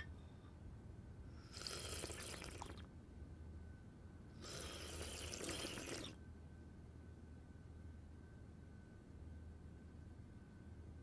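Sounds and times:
tea slurping: 1.5s - 2.8s, 4.4s - 6.2s.

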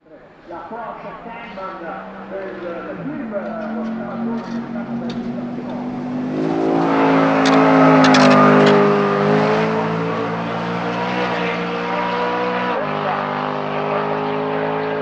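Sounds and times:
race car engine accelerating: 0.3s - 15.0s
engine backfire cracks: 7.4s - 8.8s.

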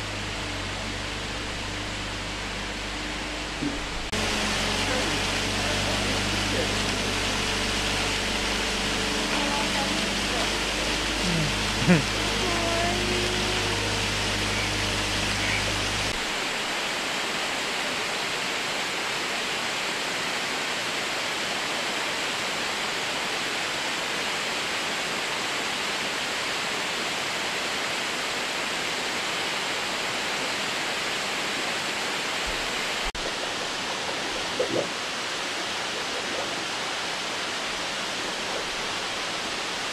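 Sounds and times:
low hum: 0.0s - 16.6s
rush of running water: 0.0s - 39.9s.

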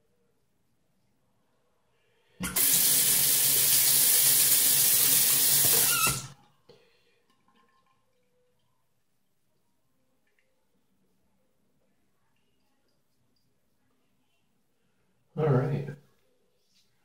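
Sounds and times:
tap water running into sink: 2.4s - 6.4s.

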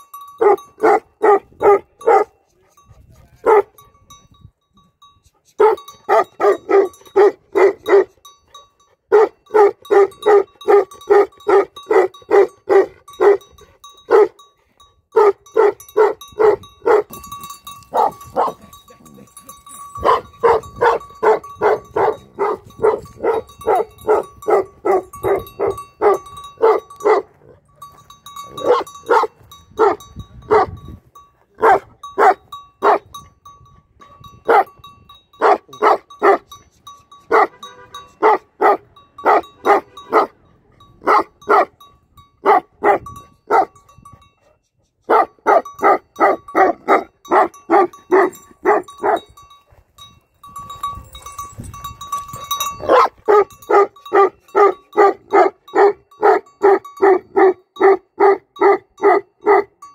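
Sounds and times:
large dog barking deeply: 0.4s - 2.4s, 31.6s - 33.0s.

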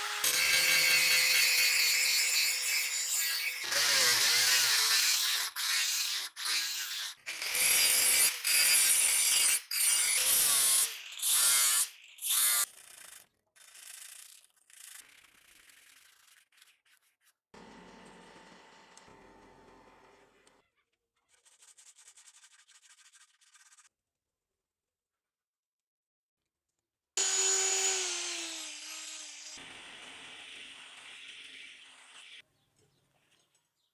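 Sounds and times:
angle grinder grinding steel: 0.0s - 12.7s, 27.2s - 29.6s.

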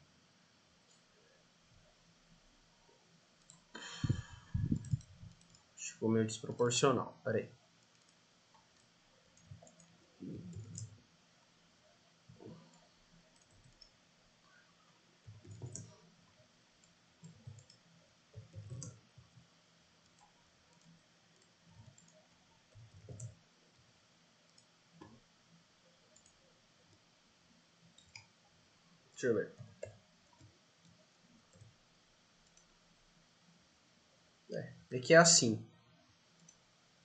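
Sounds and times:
computer mouse clicks: 3.4s - 5.7s, 7.8s - 11.0s, 12.4s - 14.0s, 15.3s - 16.0s, 16.8s - 17.8s, 18.4s - 19.0s, 20.0s - 23.4s, 24.5s - 25.2s, 26.1s - 27.0s, 27.9s - 28.3s, 29.6s - 31.8s, 32.4s - 32.7s, 36.4s - 36.6s.

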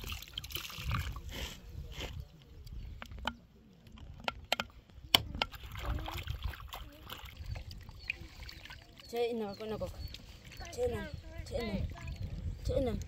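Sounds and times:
sharp taps and knocks: 4.2s - 5.6s.

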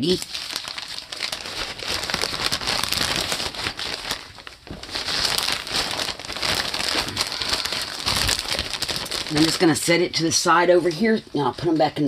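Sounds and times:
plastic bag crinkling: 0.0s - 10.1s.

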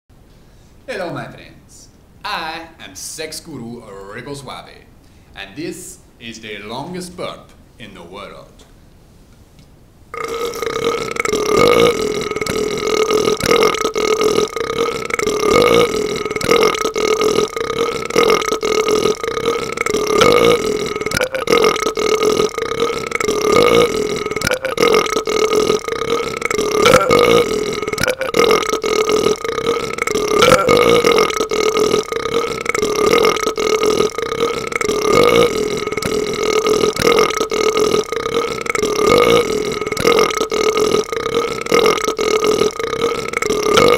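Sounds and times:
man burping: 10.2s - 43.9s.

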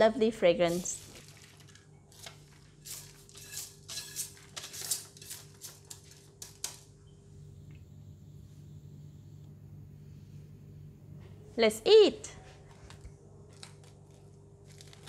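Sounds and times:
faint steady hum: 0.0s - 15.0s
spatula scraping a plate: 2.8s - 6.0s.

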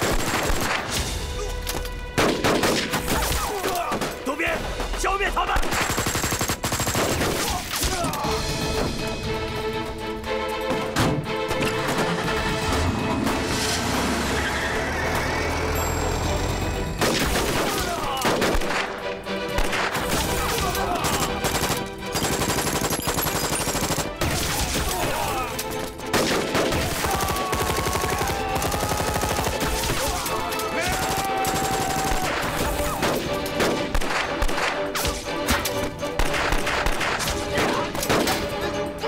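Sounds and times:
rifle and pistol shots: 0.0s - 1.2s, 2.1s - 4.2s, 5.5s - 7.8s, 17.0s - 25.0s, 26.0s - 30.2s, 31.0s - 38.5s
film music: 0.0s - 39.0s
machine gun bursts: 21.0s - 24.1s, 26.2s - 30.1s.

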